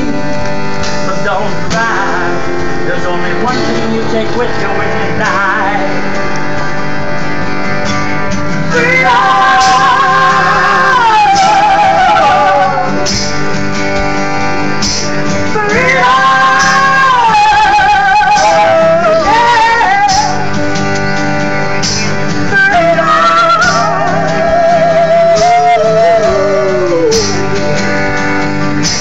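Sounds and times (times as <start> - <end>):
person singing wordless notes: 0.0 - 7.2, 8.6 - 13.1, 15.4 - 20.7, 22.4 - 27.9
acoustic guitar chords: 0.0 - 29.0
keyboard chords: 0.0 - 29.0.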